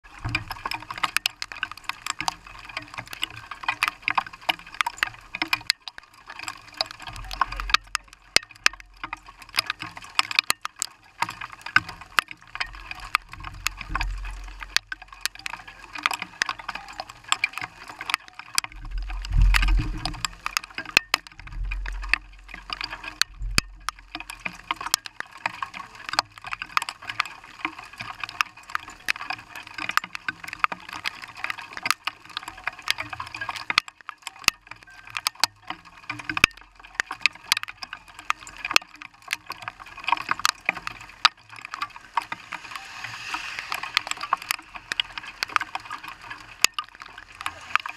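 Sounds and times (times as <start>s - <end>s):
rain and sleet on windshield: 0.0s - 47.9s
low rumbles: 18.8s - 20.4s.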